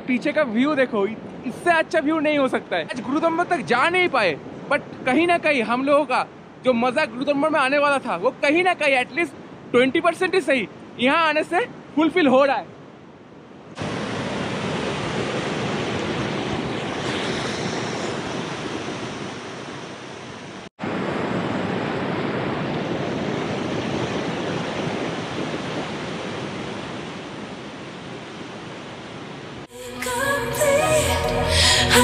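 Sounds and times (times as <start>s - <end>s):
river rushing over boulders: 13.7s - 29.7s.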